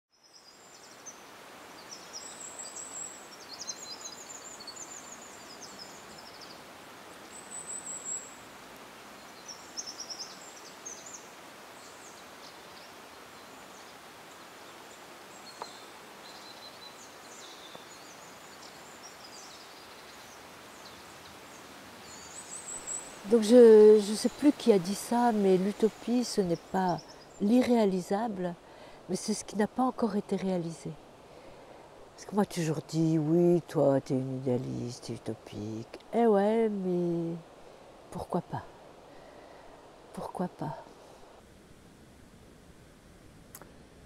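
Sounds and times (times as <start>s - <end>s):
small birds chirping: 0.1s - 31.0s
faint outdoor hiss: 0.1s - 44.0s.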